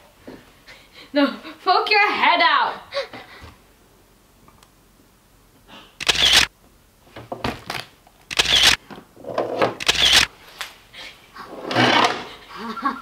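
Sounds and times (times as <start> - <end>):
camera shutter clicks: 6.0 - 6.5, 8.3 - 8.8, 9.8 - 10.3.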